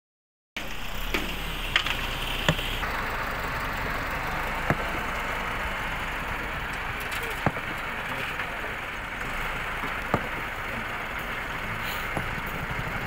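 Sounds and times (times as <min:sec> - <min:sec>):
tractor engine running: 0:00.6 - 0:13.0
sharp knocks: 0:09.8 - 0:10.6.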